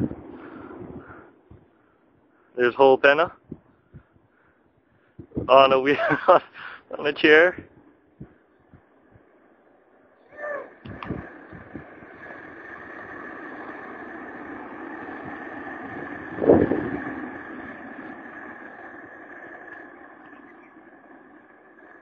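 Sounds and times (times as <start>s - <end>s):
wind on microphone: 0.0s - 1.7s, 3.2s - 5.8s, 10.4s - 19.4s
rolling road noise: 0.0s - 22.0s.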